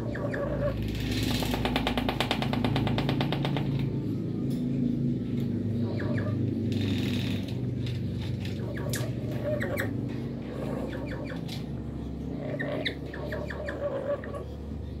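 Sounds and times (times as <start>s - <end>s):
steady low hum: 0.0s - 15.0s
bird squeaks and chirps: 8.6s - 10.0s.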